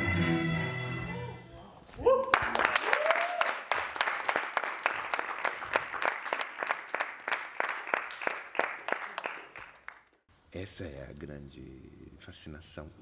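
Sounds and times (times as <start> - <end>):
small group applauding: 2.0 - 10.2.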